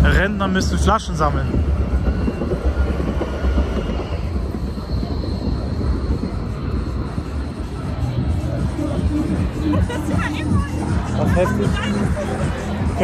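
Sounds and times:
tram rumbling along street: 0.0s - 13.0s
faint high whine: 0.6s - 9.6s.

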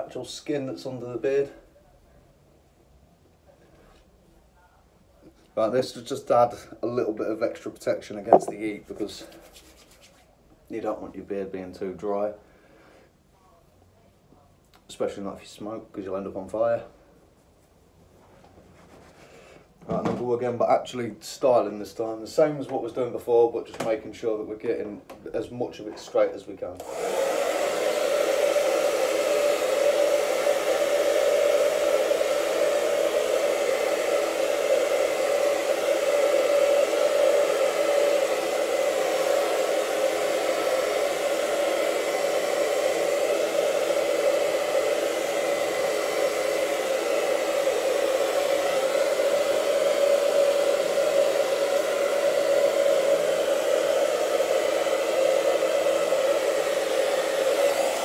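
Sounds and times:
hair dryer whirring: 8.3s - 8.6s, 26.8s - 58.0s.

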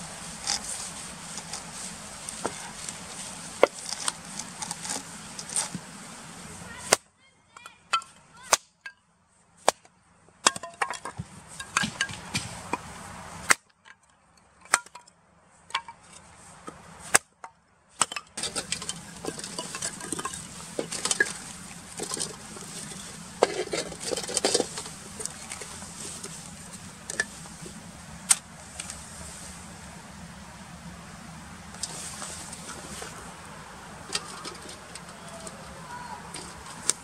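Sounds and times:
wooden sticks clattering on metal: 0.0s - 9.0s, 10.4s - 12.9s, 13.5s - 17.2s, 18.0s - 29.1s, 31.7s - 37.0s
hatchet splitting wood: 3.6s - 5.0s, 8.0s - 8.8s, 13.5s - 13.8s, 17.1s - 17.4s.

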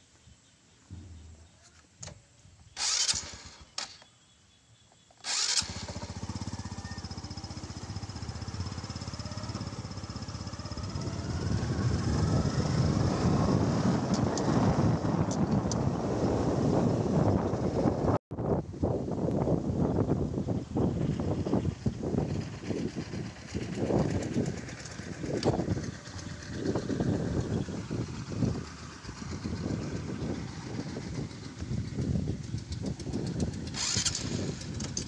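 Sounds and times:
motorcycle engine starting and running: 0.9s - 4.1s, 5.2s - 18.2s, 19.9s - 35.0s.

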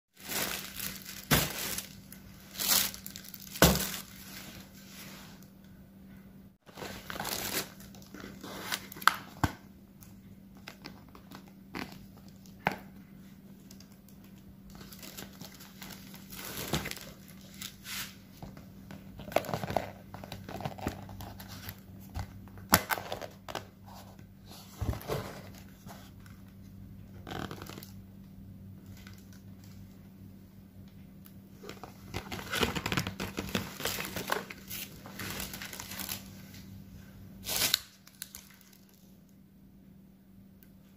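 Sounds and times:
packaging rustling and tearing: 0.2s - 4.7s, 6.7s - 9.6s, 14.7s - 18.6s, 31.6s - 36.4s, 37.4s - 39.0s
faint steady low hum: 0.2s - 40.9s.

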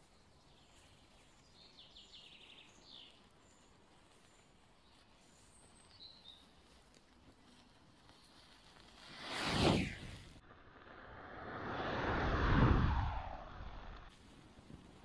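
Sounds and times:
distant songbird calls: 0.1s - 6.5s.

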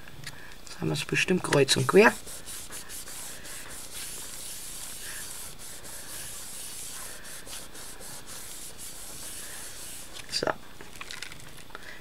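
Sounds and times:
hands rubbing cardstock: 1.7s - 10.3s.

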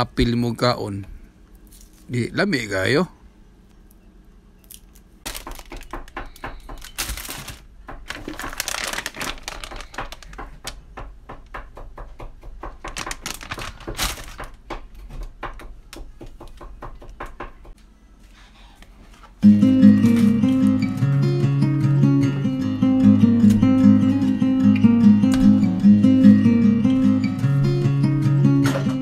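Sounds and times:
plastic packaging crinkling: 1.6s - 2.1s, 4.7s - 5.9s, 6.7s - 10.8s, 12.9s - 14.6s
guitar music: 19.4s - 29.0s.

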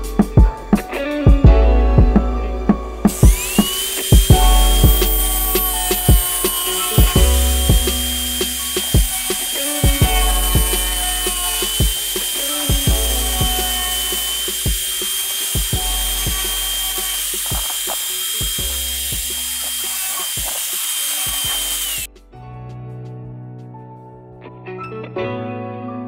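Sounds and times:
angle grinder whining: 3.1s - 22.1s.

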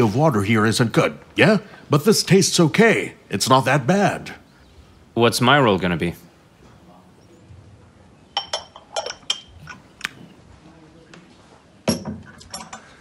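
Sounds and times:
ceramic teacup clinking: 8.3s - 9.9s.

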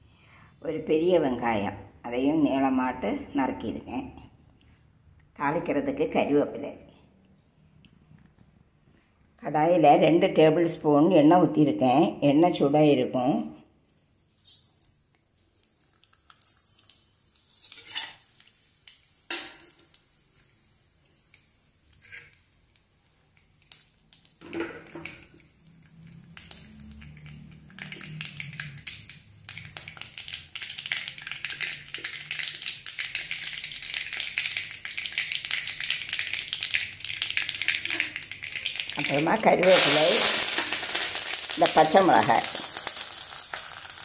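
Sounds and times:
hot oil sizzling and crackling: 14.4s - 44.0s.

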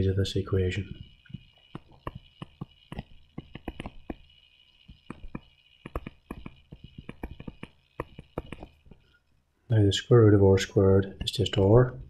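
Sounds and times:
stylus tapping on tablet screen: 1.3s - 4.2s, 4.9s - 9.0s.

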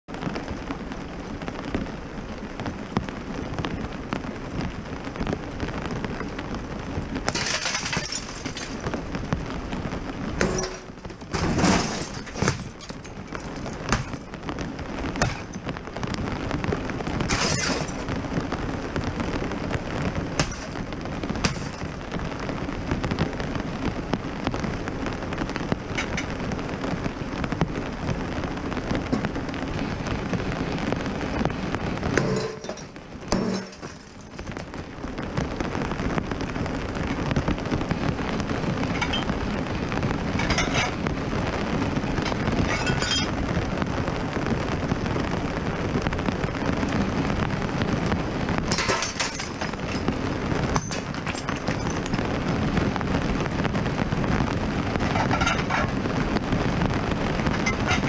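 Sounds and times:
rain falling: 0.0s - 58.0s
knocks and clatter: 7.3s - 9.0s, 10.4s - 14.4s, 15.2s - 15.7s, 17.3s - 18.1s, 20.4s - 22.0s, 32.1s - 34.6s, 38.9s - 39.3s, 40.4s - 41.0s, 42.2s - 43.3s, 48.7s - 52.2s, 55.0s - 56.0s, 57.5s - 58.0s.

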